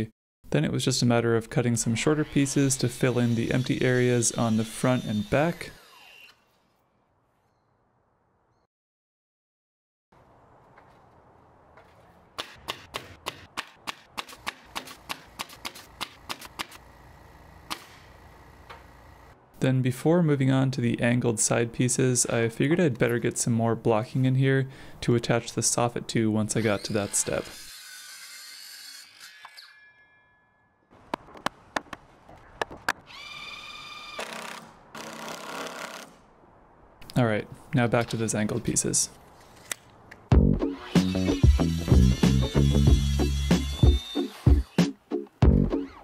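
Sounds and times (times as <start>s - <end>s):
power tool motor whining: 2.2s - 6.5s, 33.1s - 36.2s, 40.8s - 44.8s
motor winding down with ringing: 40.9s - 44.8s.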